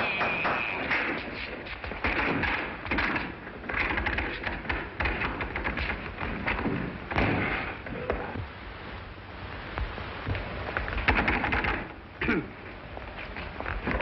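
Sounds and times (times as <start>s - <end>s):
knocks and clatter: 0.0s - 8.3s, 9.8s - 12.0s.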